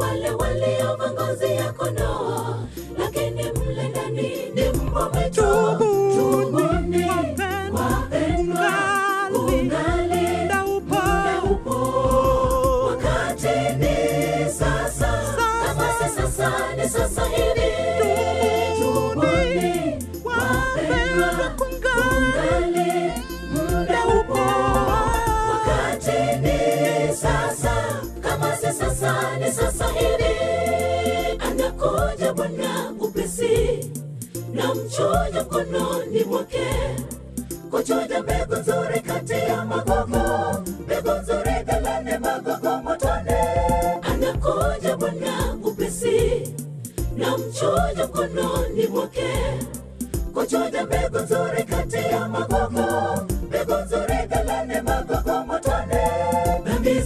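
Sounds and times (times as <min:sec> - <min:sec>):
choir singing gospel song: 0:00.0 - 0:57.0
percussive beat: 0:00.0 - 0:57.0
low bass notes: 0:04.6 - 0:08.9, 0:09.5 - 0:32.1, 0:38.3 - 0:42.1.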